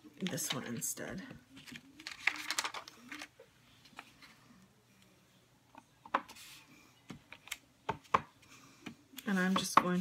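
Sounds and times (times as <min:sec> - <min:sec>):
paper rustle: 0:01.6 - 0:04.4.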